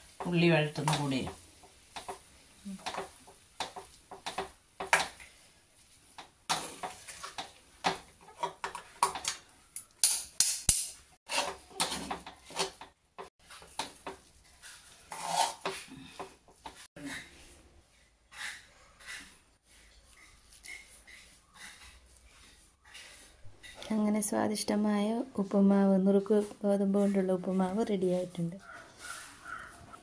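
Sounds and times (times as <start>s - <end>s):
metal spoon scraping a pan: 6.5s - 9.4s, 11.3s - 17.5s, 18.3s - 19.9s, 20.6s - 24.0s.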